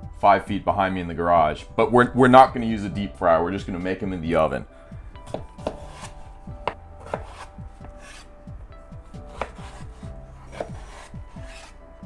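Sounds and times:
knife slicing potatoes: 5.2 - 8.3, 9.1 - 11.8
knife knocking on cutting board: 5.3 - 8.2.

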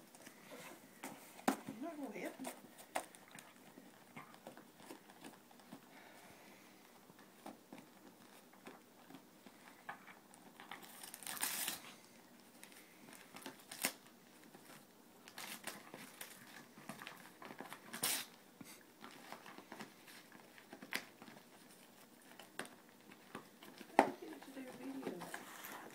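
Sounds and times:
dog tearing wrapping paper: 10.2 - 12.0, 12.6 - 18.4, 19.0 - 25.9.

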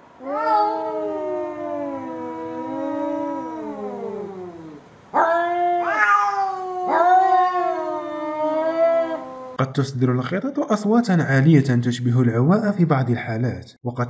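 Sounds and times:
cat yowling: 0.2 - 9.6.

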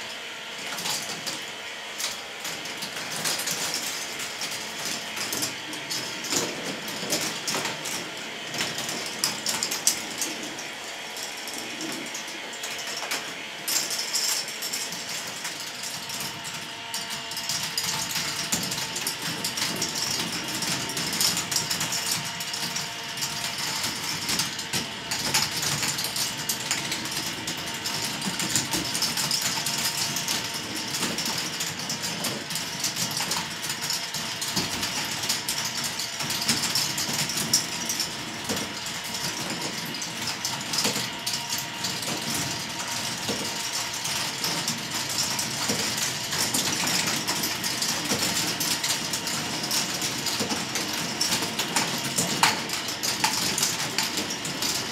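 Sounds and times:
lift motors humming: 0.0 - 54.9
plastic balls clattering on tracks: 17.3 - 54.9.

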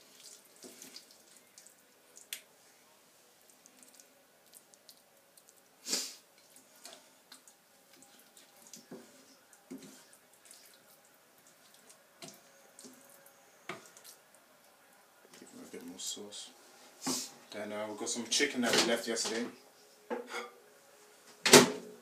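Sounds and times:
wooden spoon scraping curry: 0.1 - 1.4, 6.4 - 10.9.

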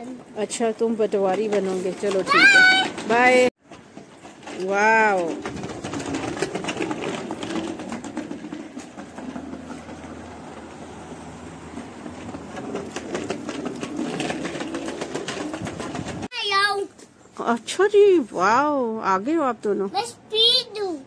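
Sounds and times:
bicycle rattling on tiled floor: 0.0 - 16.3.

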